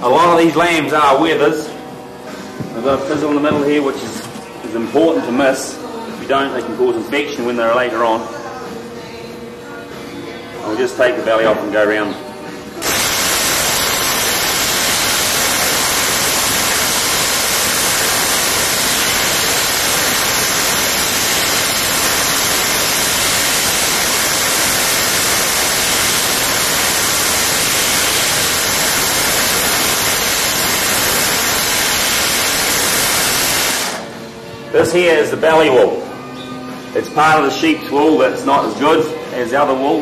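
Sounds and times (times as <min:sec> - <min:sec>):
shearing handpiece running: 0:12.8 - 0:34.1.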